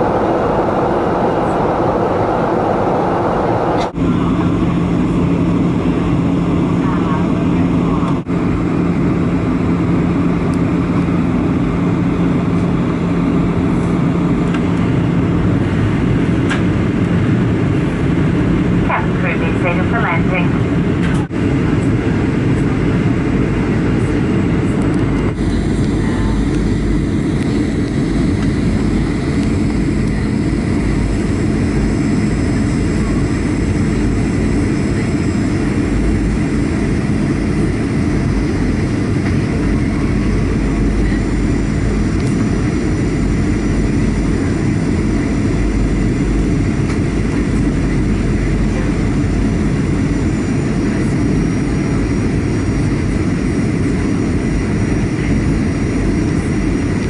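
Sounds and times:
rushing airflow: 0:00.0 - 0:06.8, 0:20.7 - 0:57.0
jet engine roar in cabin: 0:00.0 - 0:57.0.

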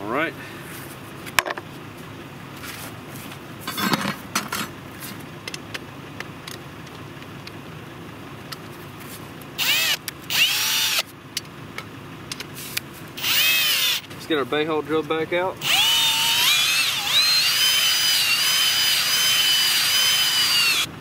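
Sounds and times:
power drill bursts: 0:09.6 - 0:11.0, 0:13.2 - 0:14.1, 0:15.6 - 0:20.9.

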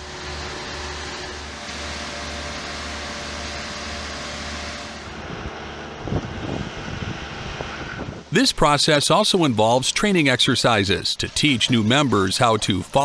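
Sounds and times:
concrete pouring from chute: 0:00.0 - 0:05.1, 0:08.4 - 0:13.0
screed machine engine running: 0:00.0 - 0:13.0.

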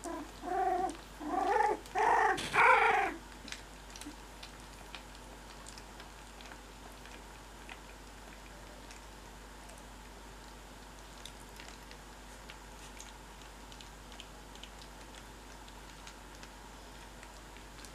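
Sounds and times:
puppy crying: 0:00.0 - 0:03.2
puppies shuffling: 0:00.0 - 0:17.9.

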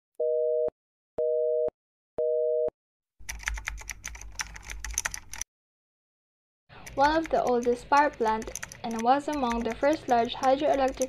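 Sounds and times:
telephone busy signal beeps: 0:00.2 - 0:02.7
computer keyboard typing clicks: 0:03.2 - 0:05.4, 0:06.8 - 0:11.0.

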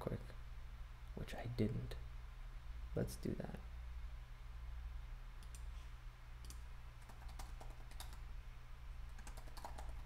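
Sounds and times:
typing on computer keyboard: 0:06.4 - 0:08.2, 0:09.1 - 0:10.0.

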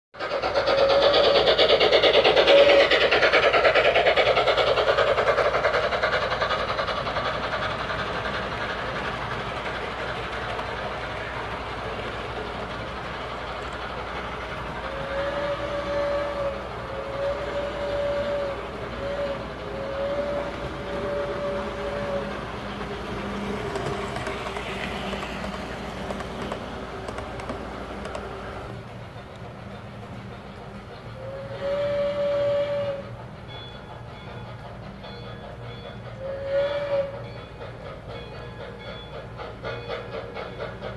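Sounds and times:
model train running noise: 0:00.2 - 0:40.9
steam locomotive whistle: 0:00.5 - 0:05.2, 0:14.5 - 0:24.1, 0:30.8 - 0:40.9.

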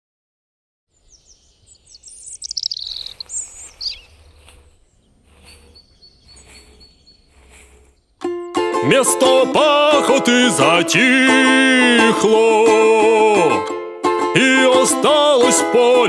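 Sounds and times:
birds chirping and trilling: 0:00.9 - 0:08.2
low wind rumble: 0:01.0 - 0:08.2
footsteps through grass: 0:01.1 - 0:08.2.

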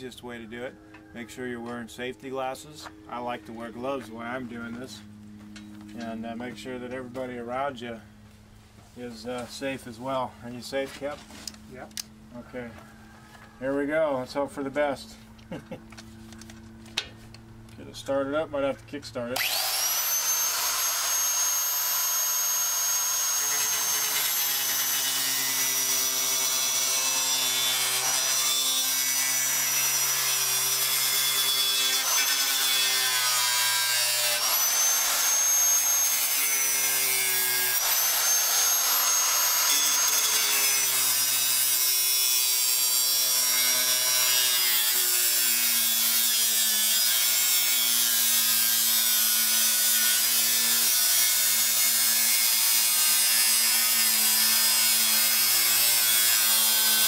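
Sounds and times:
die grinder cutting metal: 0:19.4 - 0:57.0.

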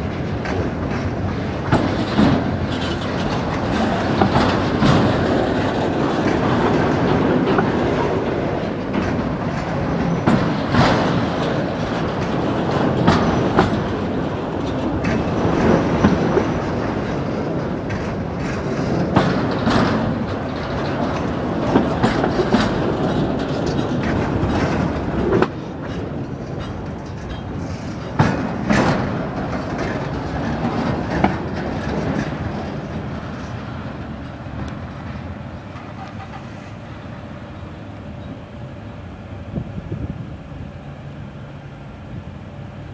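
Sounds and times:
freight train wheel rumble: 0:00.0 - 0:42.9
wheels clacking over rail joints: 0:00.0 - 0:42.9.

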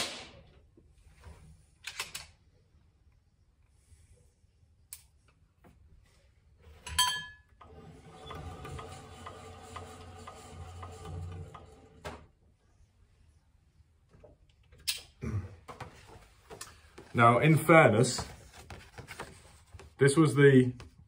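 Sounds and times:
pulley line whirring rattle: 0:07.6 - 0:11.9.

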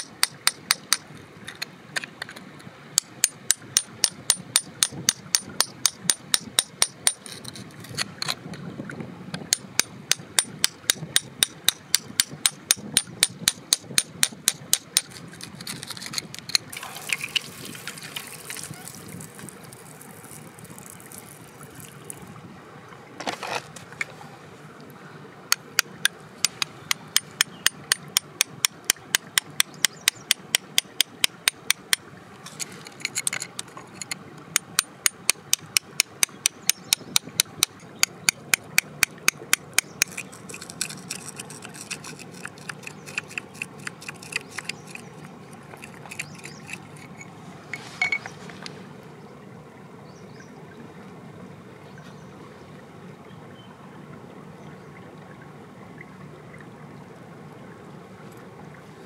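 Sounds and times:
metal tool tapping on stone: 0:00.1 - 0:01.0, 0:03.0 - 0:07.2, 0:09.5 - 0:15.2, 0:26.4 - 0:32.0, 0:33.1 - 0:45.1
steady low hiss: 0:06.5 - 0:36.3, 0:37.3 - 0:59.0.

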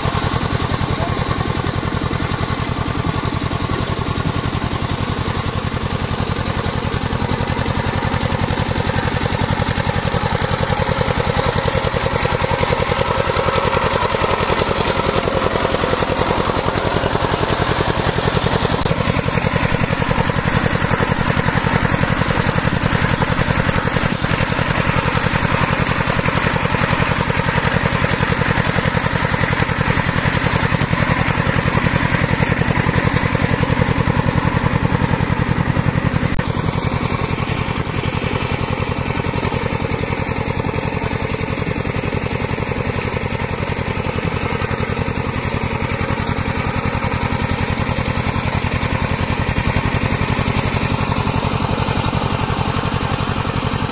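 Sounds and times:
diesel engine chugging: 0:00.0 - 0:53.9.

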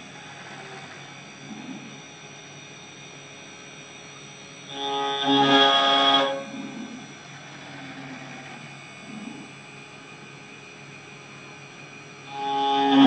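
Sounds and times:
engraving machine carving metal: 0:00.0 - 0:02.8, 0:04.6 - 0:09.6, 0:11.6 - 0:13.0
pitched machine whine: 0:00.0 - 0:13.0.

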